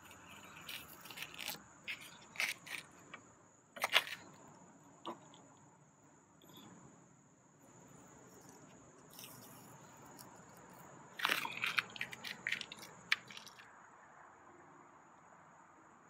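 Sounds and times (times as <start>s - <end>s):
tape peeling crackles: 0.0s - 3.0s.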